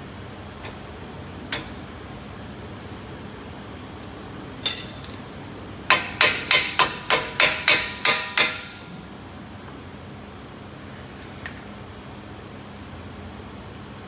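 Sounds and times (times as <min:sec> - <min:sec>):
hammer striking metal: 0:05.9 - 0:08.9.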